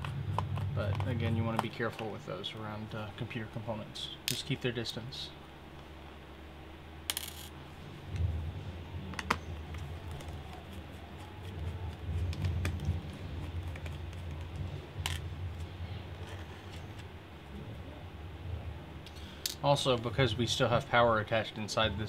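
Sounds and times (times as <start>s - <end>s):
rubbing and handling noise: 9.2s - 17.2s.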